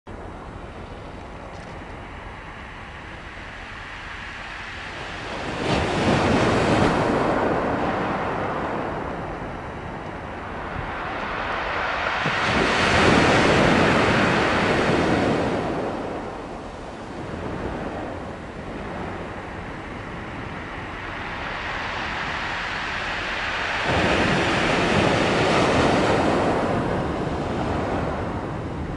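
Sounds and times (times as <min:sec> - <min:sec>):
ocean waves breaking on shore: 0:00.1 - 0:28.9.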